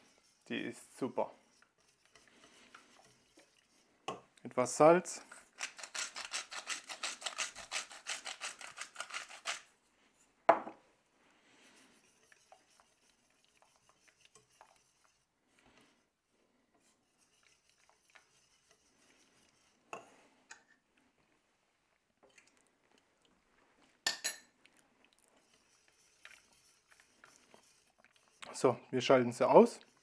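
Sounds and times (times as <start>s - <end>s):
whisk stirring in metal pot: 0.0s - 3.9s, 5.4s - 9.7s, 11.5s - 15.3s, 16.8s - 20.0s, 25.4s - 30.0s
salt mill grinding: 5.5s - 9.7s.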